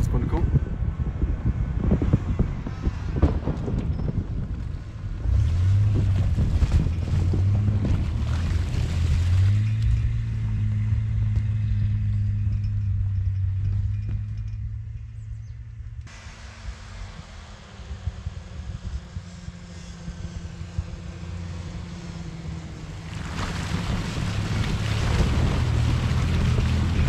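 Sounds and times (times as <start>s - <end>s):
car engine pulling hard: 0.0s - 27.0s
slush and water splashing under tyres: 5.4s - 9.9s, 22.9s - 27.0s.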